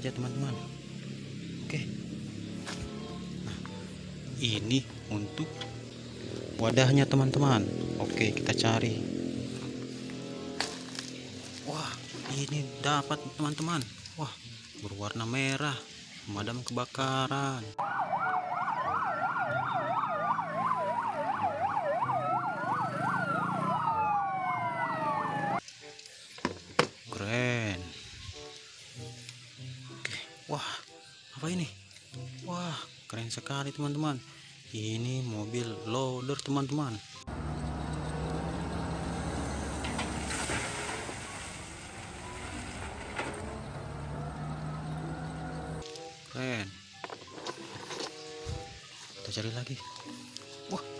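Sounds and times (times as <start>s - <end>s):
siren fast yelp: 17.8s - 25.6s
siren wails rising and falling: 17.8s - 25.6s, 43.5s - 45.8s
low engine rumble: 37.3s - 45.8s.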